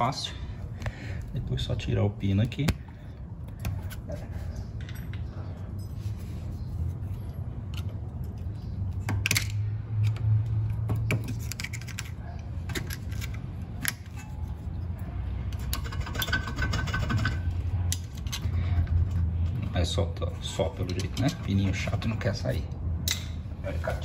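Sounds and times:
screwdriver clicks and scrapes on metal: 7.1s - 14.6s, 20.7s - 23.3s.

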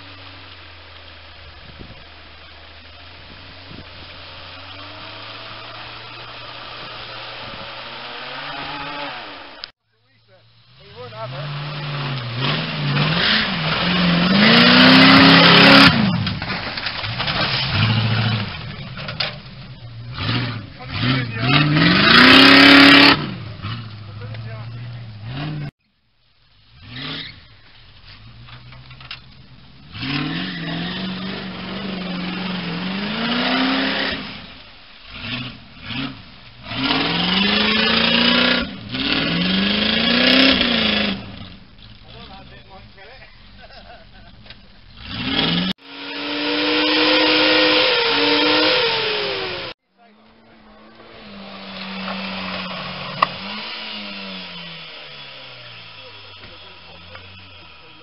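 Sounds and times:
buggy engine revving hard: 0.0s - 9.7s, 10.8s - 25.7s, 26.7s - 27.5s, 29.5s - 49.8s, 50.6s - 58.0s
wheels spinning in mud: 0.0s - 9.7s, 10.8s - 25.7s, 26.4s - 58.0s
engine running at steady revs: 43.6s - 49.8s, 50.4s - 58.0s.

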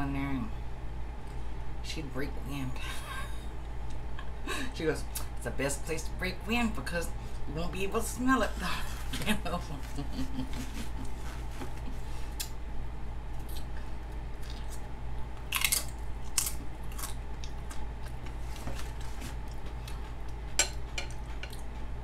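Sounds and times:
low hum: 0.0s - 22.0s
person crunching and chewing: 13.4s - 22.0s.

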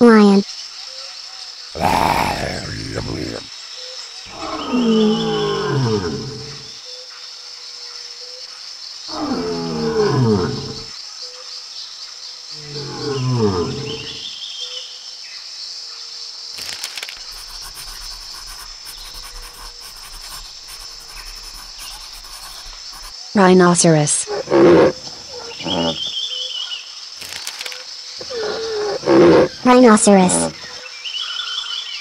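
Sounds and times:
lion roaring: 1.8s - 3.5s, 4.3s - 6.7s, 9.1s - 10.9s, 12.6s - 14.2s, 24.2s - 26.1s, 28.2s - 29.6s, 30.2s - 30.6s.

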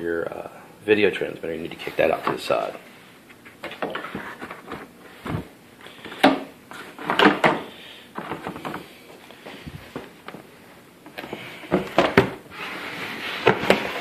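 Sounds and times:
box handling knocks and rustles: 3.6s - 8.9s, 11.1s - 12.4s.

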